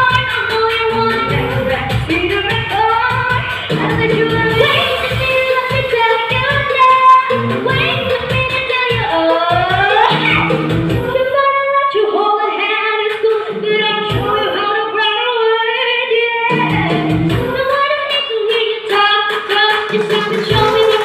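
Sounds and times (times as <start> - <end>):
electronic keyboard accompaniment: 0.0 - 11.2, 16.5 - 17.6
girls singing into microphones: 19.0 - 21.0.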